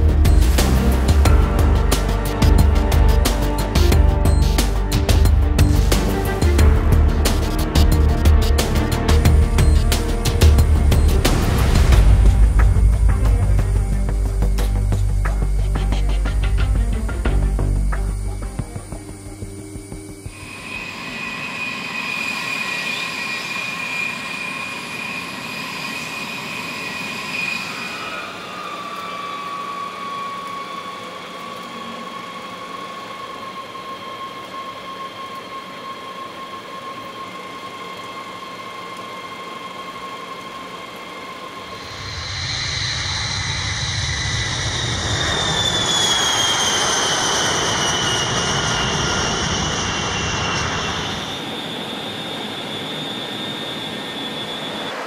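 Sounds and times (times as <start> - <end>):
jet engines whining: 0.0 - 55.0
rushing jet noise: 20.2 - 31.4, 38.8 - 55.0.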